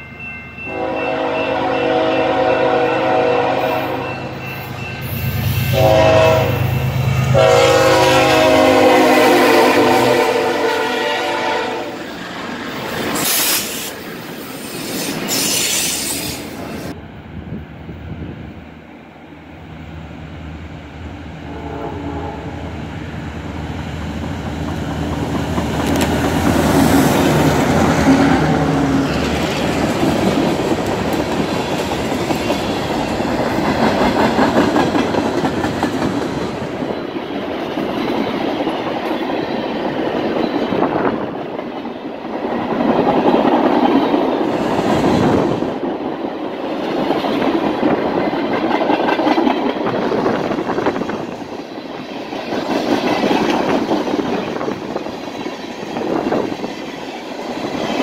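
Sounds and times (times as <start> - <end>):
diesel locomotive droning: 0.0 - 38.0
train wheels rumbling on rails: 19.5 - 58.0.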